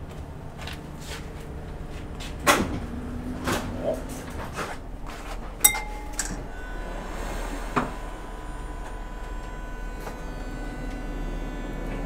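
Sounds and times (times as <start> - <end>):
tram electric whine and hum: 0.0 - 12.0
tram gong bell ding: 5.6 - 12.0.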